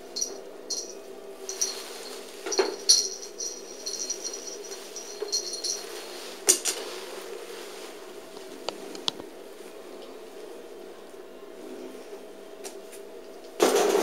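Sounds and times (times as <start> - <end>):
steady low hum: 0.0 - 13.7
small bell jingling: 0.2 - 6.3.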